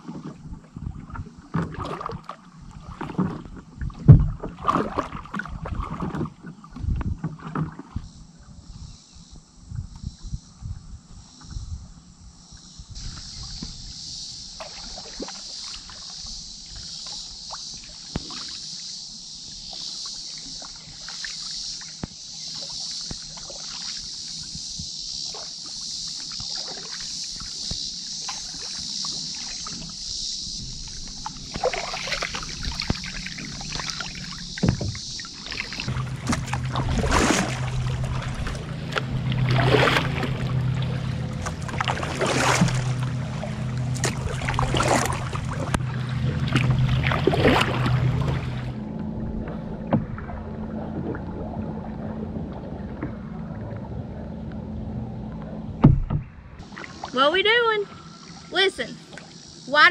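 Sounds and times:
paddle splashing in water: 0:00.0 - 0:08.1, 0:13.0 - 0:18.8, 0:19.4 - 0:59.8
high-pitched insect drone: 0:07.9 - 0:49.8, 0:56.6 - 0:59.9
low steady hum: 0:29.4 - 0:59.9.

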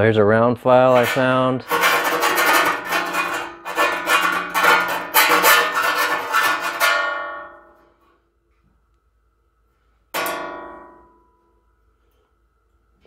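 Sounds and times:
round file rasping in steel hole: 0:00.9 - 0:07.5
steel sheet ringing: 0:00.9 - 0:08.0, 0:10.2 - 0:11.6.

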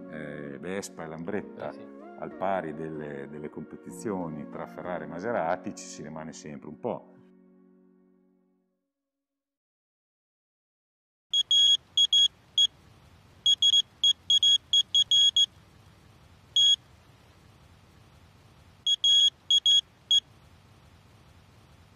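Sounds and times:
faint low hum: 0:11.4 - 0:21.9
high electronic beeps: 0:13.5 - 0:15.5, 0:16.6 - 0:16.8, 0:18.9 - 0:20.2.

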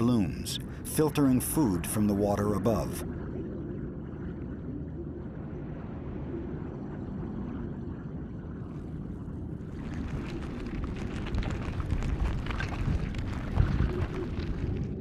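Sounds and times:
low underwater rumble: 0:00.0 - 0:15.0
crackling hiss with clicks: 0:09.4 - 0:15.0.

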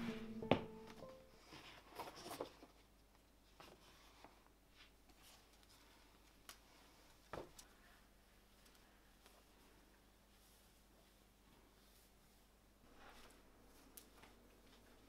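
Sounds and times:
soft rustling: 0:03.4 - 0:15.0.

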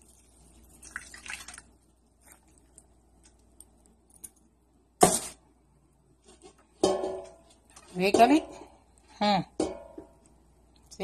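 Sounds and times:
liquid splashing into a pan: 0:00.0 - 0:02.9.

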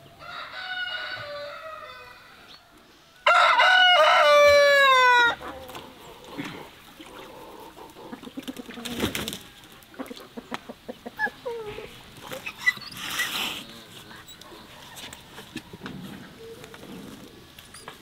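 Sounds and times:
rooster crowing: 0:00.2 - 0:05.4.

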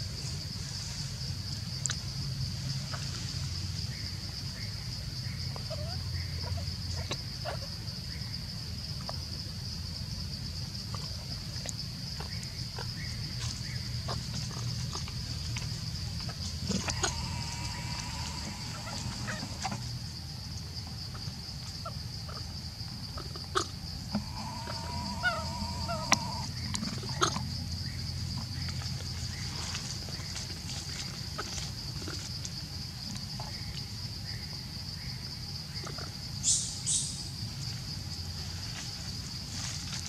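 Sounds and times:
high-pitched insect drone: 0:16.0 - 0:20.0, 0:24.1 - 0:28.3
short animal call: 0:24.2 - 0:26.5.

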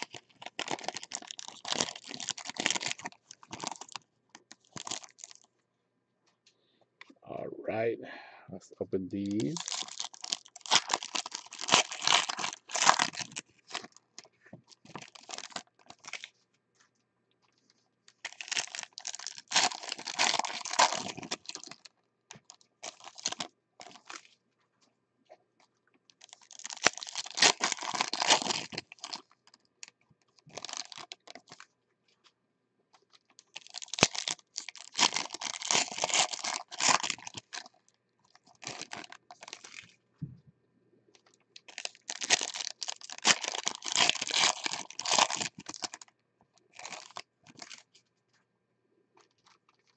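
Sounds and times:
foil wrappers tearing and crinkling: 0:00.0 - 0:05.5, 0:09.2 - 0:16.3, 0:18.2 - 0:21.8, 0:22.8 - 0:24.2, 0:26.2 - 0:29.6, 0:30.5 - 0:31.6, 0:33.4 - 0:37.8, 0:38.4 - 0:39.8, 0:41.6 - 0:46.0, 0:46.8 - 0:47.8.

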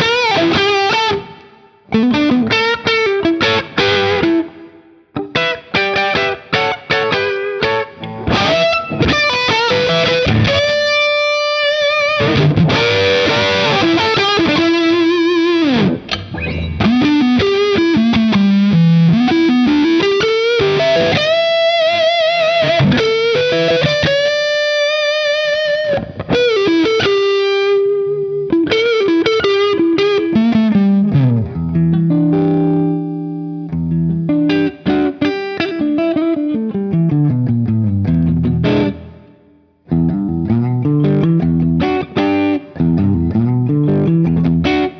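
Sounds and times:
distorted electric guitar: 0:00.0 - 0:44.9.

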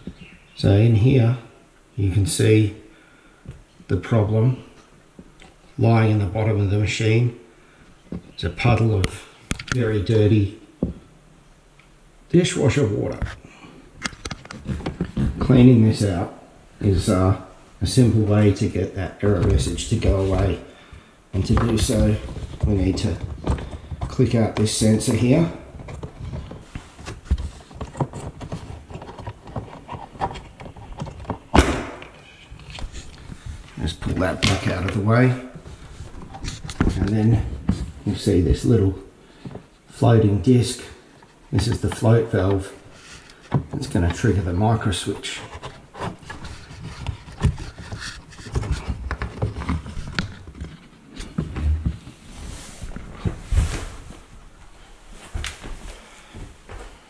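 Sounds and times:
hands rubbing and clicking in tray: 0:21.4 - 0:38.3
loud plastic snap: 0:31.5 - 0:32.2.

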